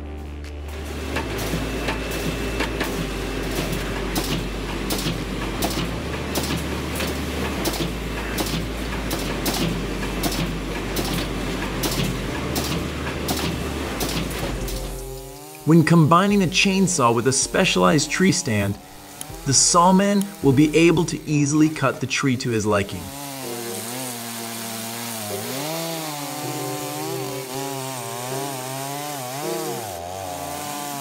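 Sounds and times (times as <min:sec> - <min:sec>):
low bass drone: 0:00.0 - 0:23.2
machine clacking: 0:01.1 - 0:15.0.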